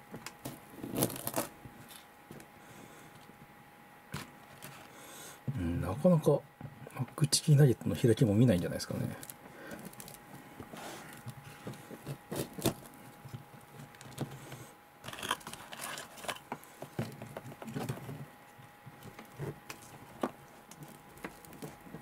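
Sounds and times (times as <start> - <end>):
knife crackling through fried coating: 10.8 - 13.0.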